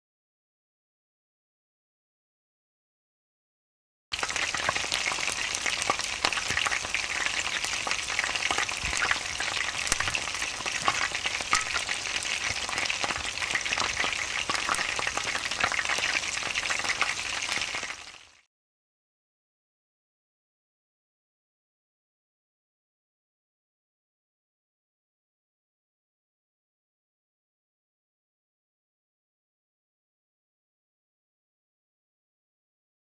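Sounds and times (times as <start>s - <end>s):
oil sizzling with crackling pops: 4.2s - 18.5s.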